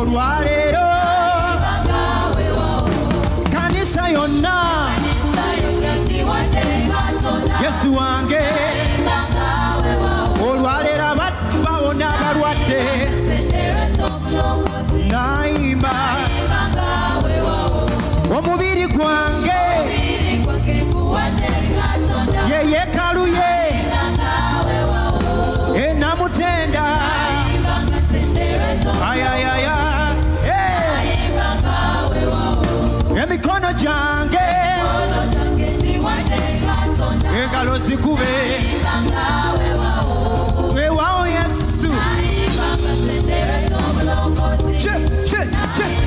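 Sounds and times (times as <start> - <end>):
male lead singer: 0.0 - 2.0, 2.9 - 5.8, 7.4 - 9.2, 10.2 - 13.5, 14.9 - 20.5, 22.3 - 24.0, 25.6 - 27.8, 28.7 - 31.2, 33.0 - 35.2, 37.2 - 38.9, 40.6 - 42.6, 44.6 - 46.0
gospel band with strong bass: 0.0 - 46.0.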